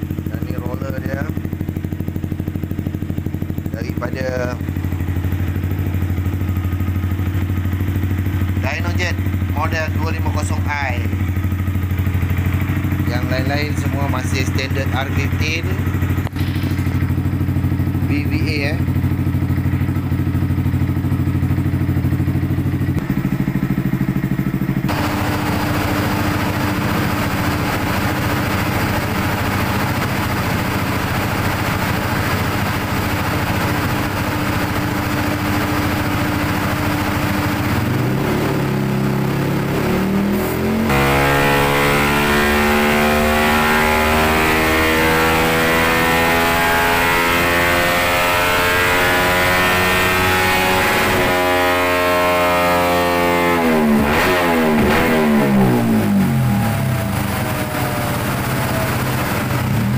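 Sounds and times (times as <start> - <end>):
motorcycle engine revving: 0.0 - 59.9
loud steady rushing noise: 24.8 - 59.9.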